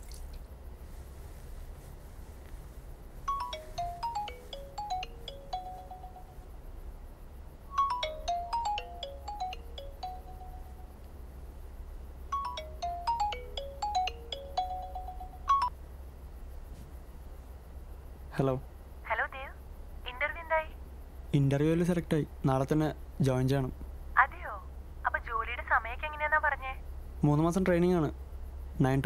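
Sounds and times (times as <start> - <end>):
mobile phone ringtone melody: 3.3 - 6.6, 7.7 - 11.0, 12.3 - 15.7.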